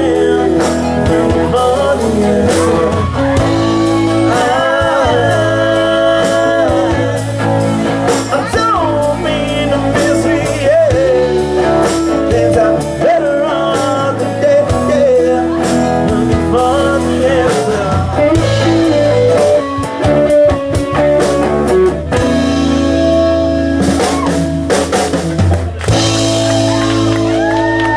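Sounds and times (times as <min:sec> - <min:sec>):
person singing lead vocal: 0:00.0 - 0:20.6
drum kit: 0:00.0 - 0:27.9
electric guitars: 0:00.0 - 0:27.9.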